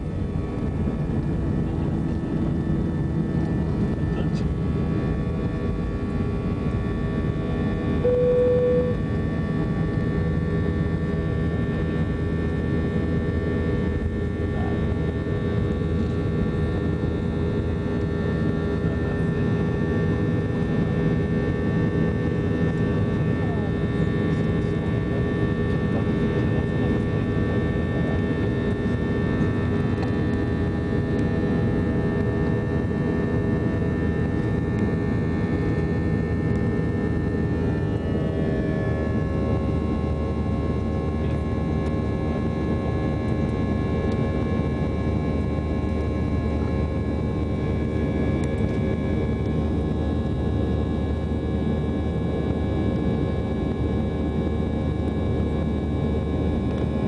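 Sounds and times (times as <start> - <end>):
steady whining tones: 0.0 - 10.2
jet engines droning: 0.0 - 57.0
short single tone: 8.0 - 9.1.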